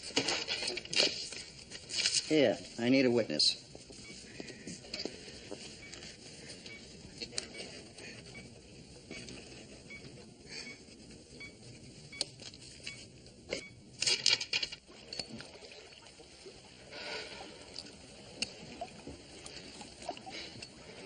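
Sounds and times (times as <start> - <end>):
water splashing in pool: 14.9 - 20.5.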